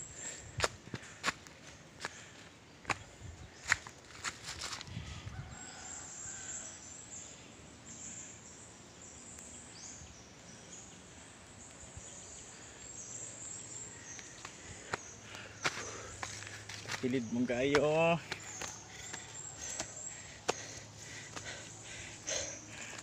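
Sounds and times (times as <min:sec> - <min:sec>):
footsteps on leaf litter: 0:02.9 - 0:04.9, 0:14.9 - 0:21.6
high-pitched wildlife chorus: 0:03.6 - 0:23.0.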